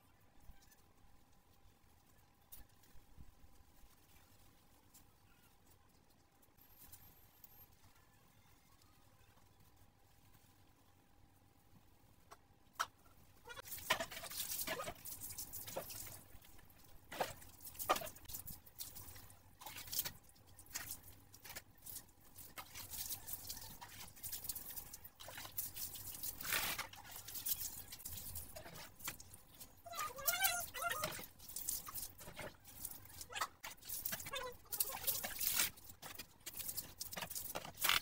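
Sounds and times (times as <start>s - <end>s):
water pouring and splashing: 13.5s - 38.0s.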